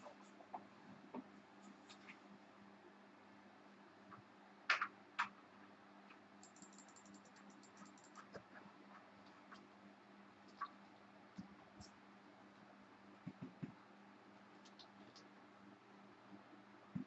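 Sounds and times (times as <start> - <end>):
sharp clicks: 6.4 - 8.3.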